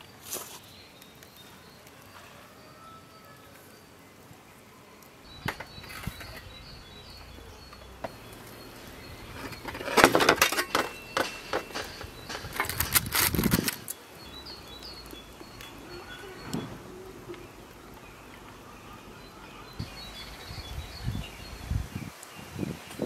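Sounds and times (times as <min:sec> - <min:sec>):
birds chirping: 0:00.0 - 0:23.0
loud scraping and rustling: 0:05.3 - 0:19.9.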